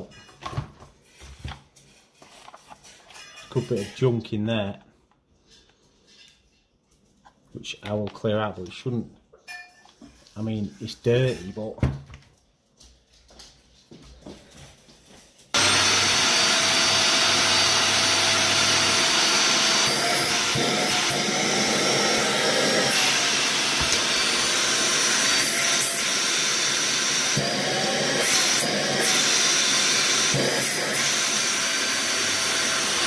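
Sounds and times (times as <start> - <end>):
vacuum cleaner motor whine: 15.6 - 33.0.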